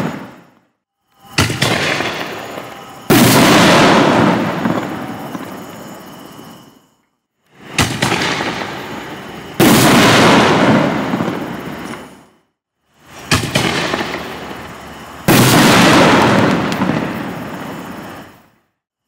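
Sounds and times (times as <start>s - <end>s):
firework shell launch report: 0.0s - 6.8s, 7.5s - 18.6s
firework shell bursting boom: 1.2s - 5.4s, 7.6s - 12.2s, 13.2s - 14.6s.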